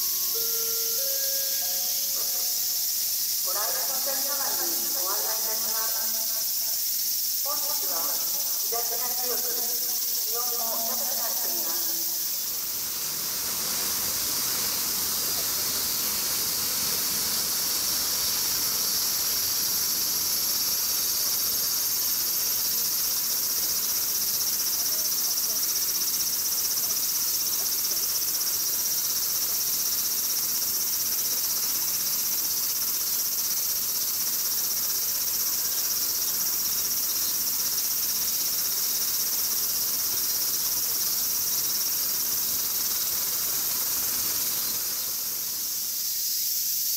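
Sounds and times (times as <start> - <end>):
insects droning: 0.0 - 46.9.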